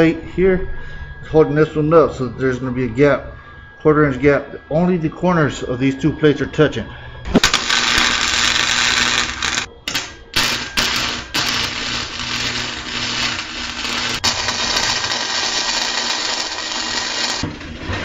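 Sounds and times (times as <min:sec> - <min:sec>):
welding arc sizzling: 0:07.4 - 0:18.0.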